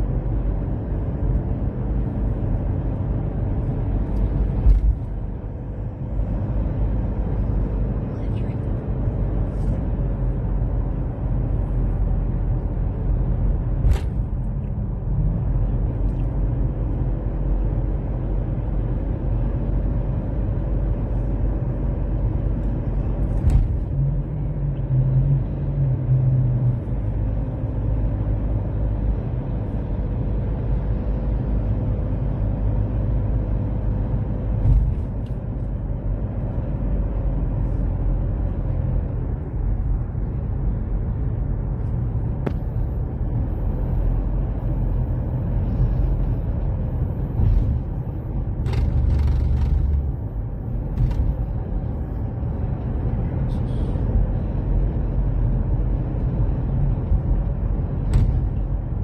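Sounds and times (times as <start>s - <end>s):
road and engine rumble in car: 0.0s - 59.0s
thump: 58.0s - 58.7s.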